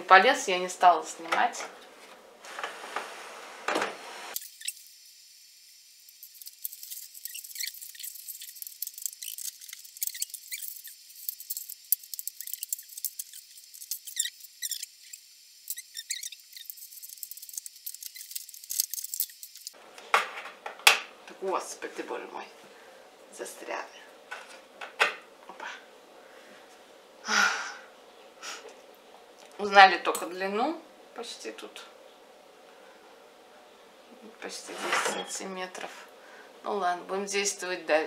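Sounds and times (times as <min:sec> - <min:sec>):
wire scraping against metal: 0:34.6 - 0:35.4.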